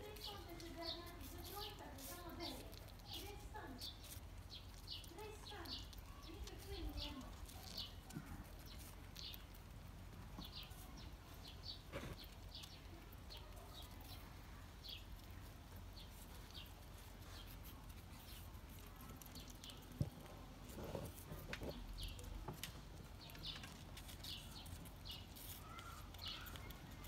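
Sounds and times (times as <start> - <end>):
faint bird chirps: 23.2 - 27.0.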